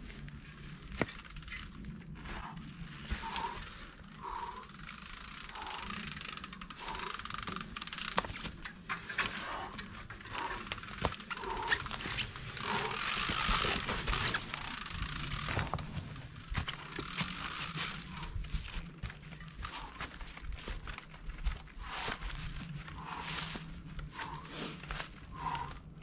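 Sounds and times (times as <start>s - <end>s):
bike tyres crunching through leaves: 0.0s - 25.8s
bike clicks and knocks: 0.8s - 21.6s.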